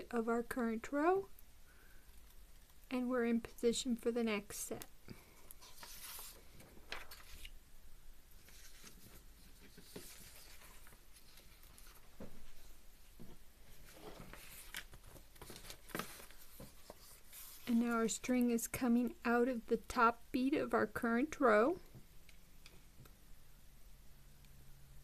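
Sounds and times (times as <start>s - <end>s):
paper sheets rustling and sliding: 5.6s - 7.5s, 8.4s - 12.7s, 13.7s - 18.1s.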